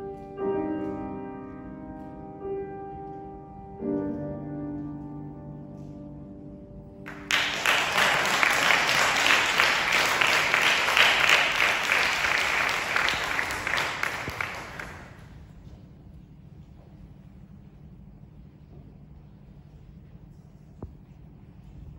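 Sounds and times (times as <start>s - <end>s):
audience applause: 7.1s - 15.3s.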